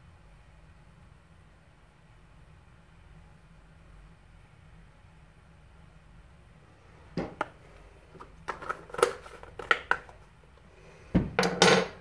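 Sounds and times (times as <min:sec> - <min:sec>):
hard objects clicking and knocking: 0:08.2 - 0:10.2, 0:11.2 - 0:12.0.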